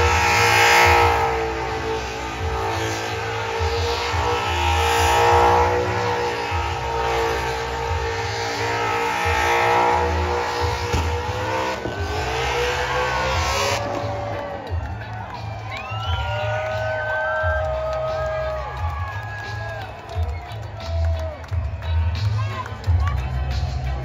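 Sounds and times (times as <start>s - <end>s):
car engine revving high: 0.0s - 14.8s.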